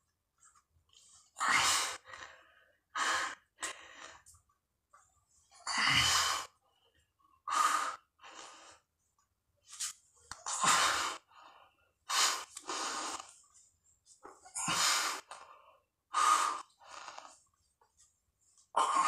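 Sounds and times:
man breathing heavily: 0:01.4 - 0:04.3.

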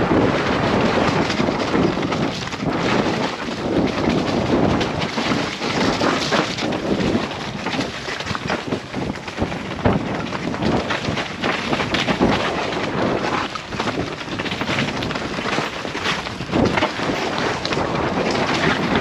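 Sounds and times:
bike clattering over bumps: 0:00.0 - 0:19.0
bike tyres rolling over dirt: 0:00.0 - 0:19.0
wind noise on microphone: 0:00.0 - 0:19.0.

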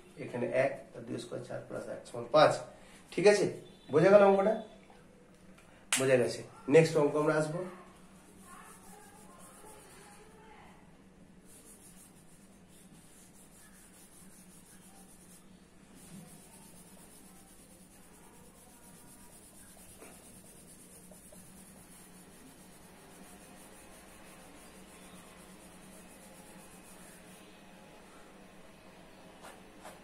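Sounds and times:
steady low hum: 0:07.7 - 0:30.0
hand rubbing whiteboard: 0:08.2 - 0:10.3, 0:11.4 - 0:27.6.

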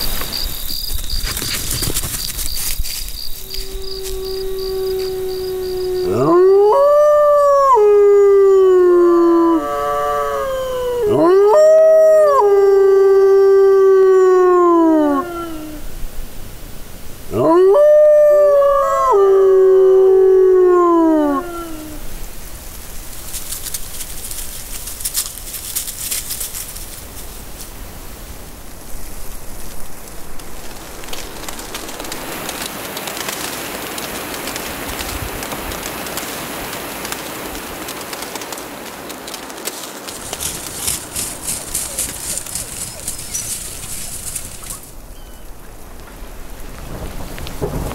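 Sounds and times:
faint crackles and hiss: 0:00.0 - 0:47.9
wolf howling: 0:03.5 - 0:15.9, 0:17.3 - 0:22.1, 0:40.7 - 0:45.5.

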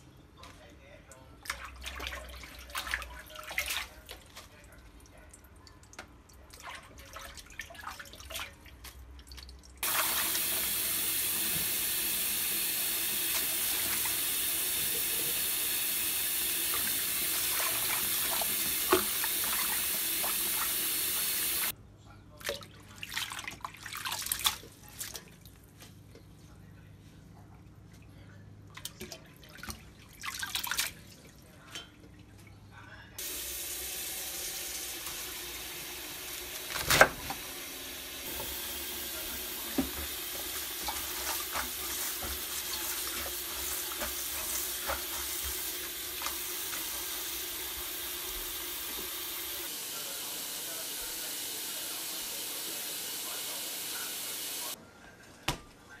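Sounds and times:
tap running into sink: 0:09.8 - 0:21.7, 0:38.3 - 0:49.6.

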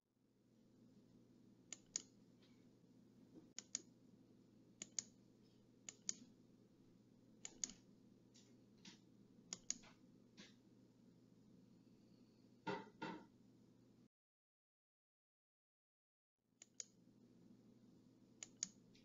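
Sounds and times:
low steady hum: 0:00.2 - 0:12.6.

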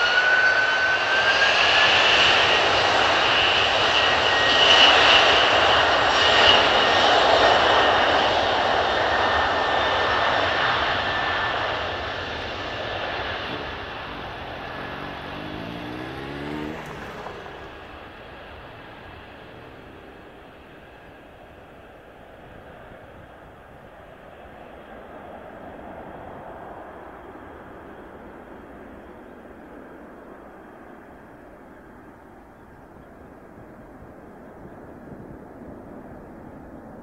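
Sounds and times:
jet engines whining: 0:00.0 - 0:22.9
jet engine roar: 0:00.0 - 0:32.5.

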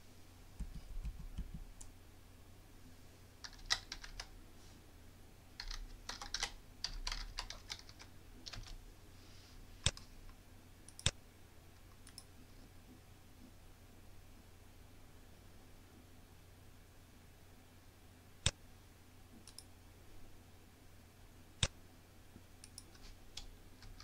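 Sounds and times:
typing on a keyboard: 0:03.4 - 0:04.3, 0:05.6 - 0:08.8, 0:22.6 - 0:24.0
sharp clicks: 0:10.9 - 0:11.2, 0:19.4 - 0:19.7.

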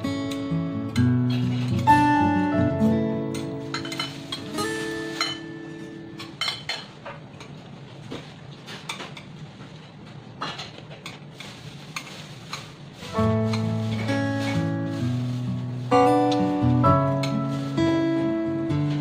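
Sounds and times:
metal utensils clinking on glass bowl: 0:03.7 - 0:05.6, 0:06.2 - 0:06.9.

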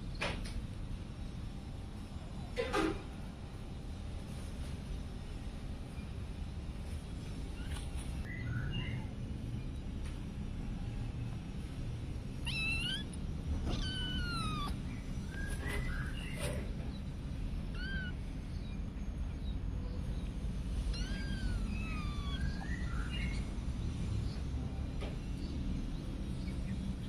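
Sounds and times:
kittens meowing: 0:12.3 - 0:16.4, 0:17.6 - 0:18.8, 0:20.8 - 0:23.5.

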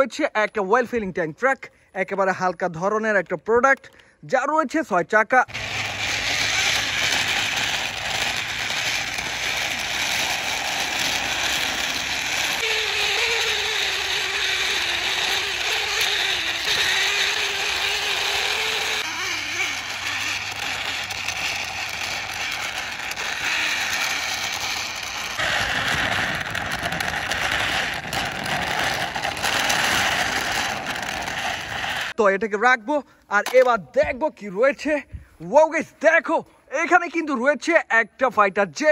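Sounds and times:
wavering hum: 0:05.5 - 0:32.1
toy truck wheels rattling: 0:05.5 - 0:32.2.

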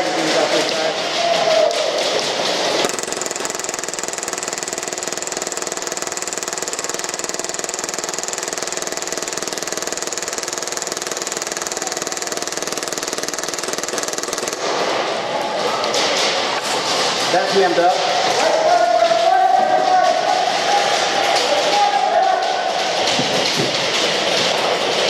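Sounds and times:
airsoft pistol full-auto burst: 0:02.8 - 0:14.8.

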